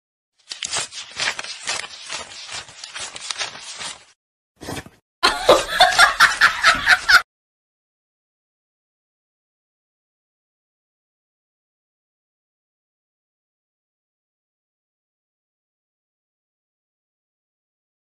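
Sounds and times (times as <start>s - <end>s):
person laughing: 5.2s - 7.2s.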